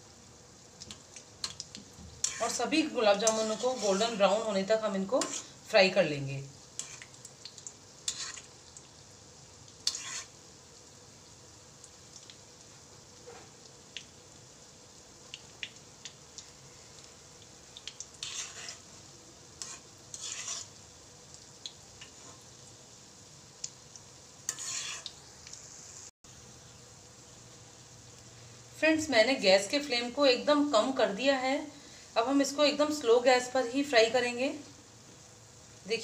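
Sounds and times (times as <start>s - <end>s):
soft frying sizzle: 0.0s - 36.0s
spatula scraping a pan: 2.2s - 5.6s, 6.8s - 7.2s, 8.0s - 8.6s, 9.8s - 10.4s, 18.1s - 18.9s, 19.5s - 20.8s, 22.0s - 22.6s, 24.4s - 25.2s.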